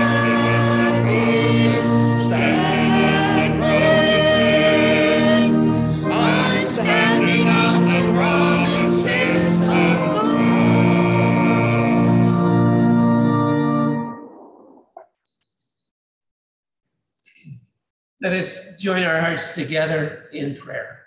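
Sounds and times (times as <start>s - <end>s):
vocal group singing a hymn: 0.0s - 13.2s.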